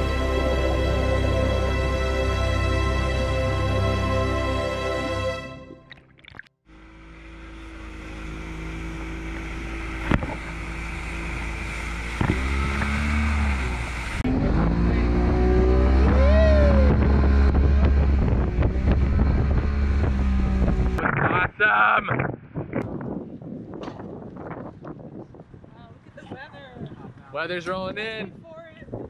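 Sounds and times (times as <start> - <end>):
outboard motor droning: 0.0 - 4.4, 6.6 - 21.0
water rushing past hull: 8.3 - 19.0
wind noise on microphone: 10.0 - 29.0.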